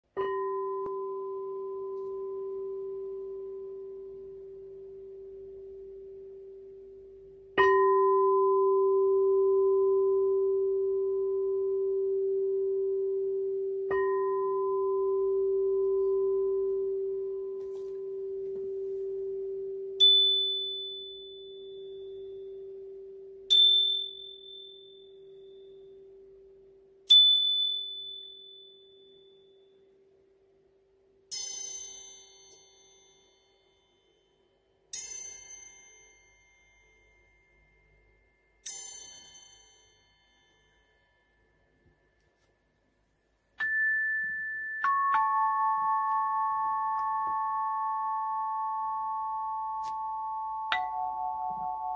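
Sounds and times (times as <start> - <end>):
singing bowl low tone ringing: 0.1 - 30.5, 31.3 - 42.2, 43.6 - 51.9.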